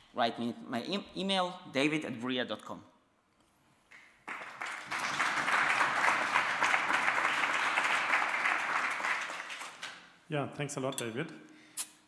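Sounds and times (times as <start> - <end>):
audience applauding: 3.9 - 10.1.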